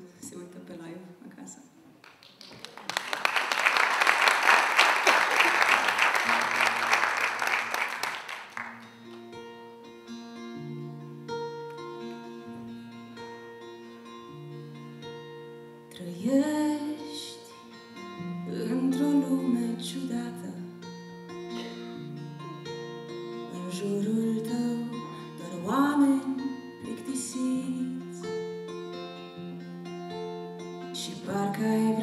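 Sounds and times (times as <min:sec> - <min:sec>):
applause: 0:02.0 - 0:09.0
acoustic guitar picking: 0:08.6 - 0:32.0
woman singing: 0:15.9 - 0:17.7, 0:18.3 - 0:20.8, 0:23.5 - 0:28.3, 0:30.9 - 0:32.0.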